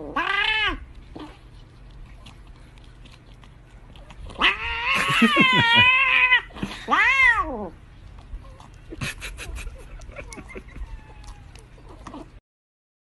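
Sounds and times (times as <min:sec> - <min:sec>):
cat meowing: 0:04.4 - 0:07.7, 0:10.8 - 0:11.6.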